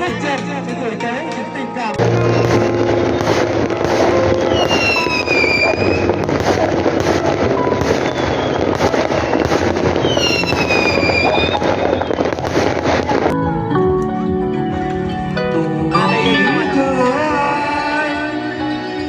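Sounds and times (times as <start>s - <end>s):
fireworks crackling: 2.0s - 13.4s
falling firework whistle: 2.2s - 13.3s.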